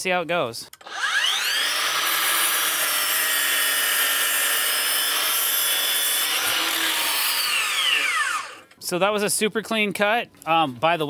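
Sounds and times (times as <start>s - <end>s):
miter saw motor whine: 0.8s - 8.7s
saw blade cutting wood: 0.8s - 8.7s.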